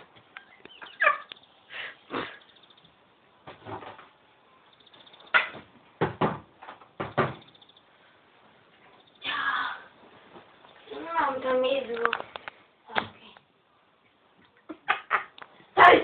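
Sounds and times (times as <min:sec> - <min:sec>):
short knocks and bumps: 0:05.3 - 0:07.5.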